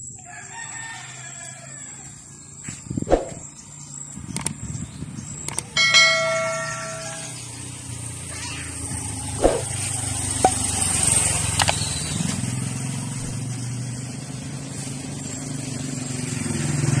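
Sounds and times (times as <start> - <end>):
motorcycle engine running: 3.6 - 17.0
sharp clicks: 4.3 - 4.6, 5.4 - 5.8.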